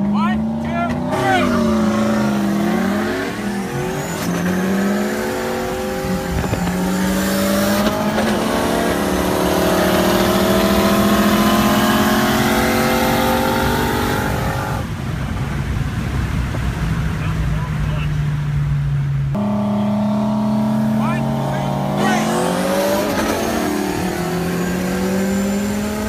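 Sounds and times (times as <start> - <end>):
car engine at full throttle: 0.0 - 26.0.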